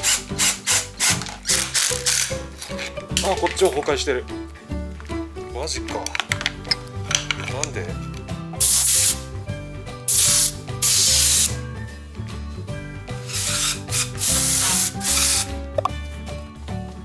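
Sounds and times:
background music: 0.0s - 17.0s
air blow gun blasts: 10.1s - 11.6s, 13.3s - 15.5s.

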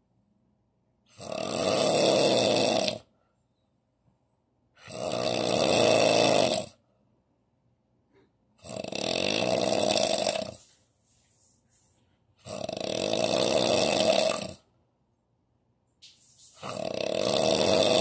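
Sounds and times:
man snoring heavily: 1.1s - 3.1s, 4.8s - 6.8s, 8.6s - 10.7s, 12.4s - 14.7s, 16.6s - 18.0s.

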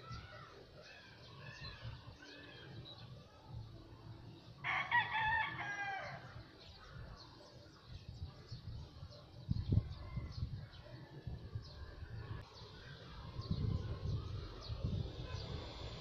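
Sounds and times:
rooster crowing: 4.6s - 6.3s.

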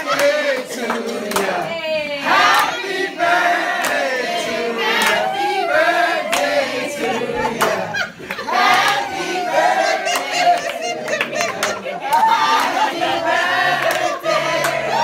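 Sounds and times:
group singing: 0.0s - 15.0s
hand claps: 0.2s - 1.7s, 3.8s - 4.1s, 5.0s - 5.4s, 6.2s - 6.6s, 10.1s - 12.8s, 13.8s - 14.8s.

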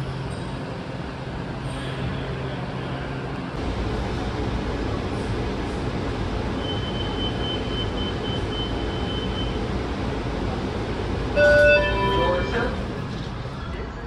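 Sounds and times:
wheels rumbling on rail: 0.0s - 14.0s
thin high whine: 11.3s - 13.3s
loud electronic chime: 11.4s - 12.8s.

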